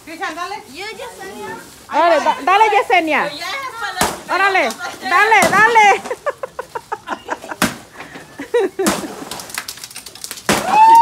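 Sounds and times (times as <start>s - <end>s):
stick whacking pinata: 3.9s - 6.1s, 7.5s - 8.0s, 8.8s - 11.0s.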